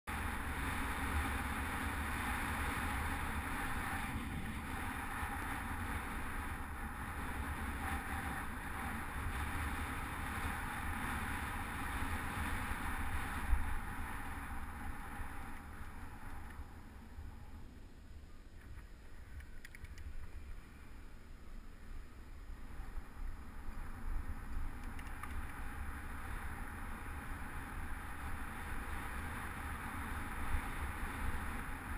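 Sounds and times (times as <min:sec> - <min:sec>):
wind buffeting camera: 0:22.6 - 0:31.9.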